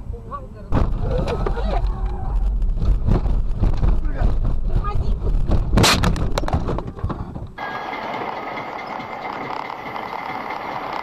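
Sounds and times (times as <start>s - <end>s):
knocks and clatter: 2.5s - 11.0s.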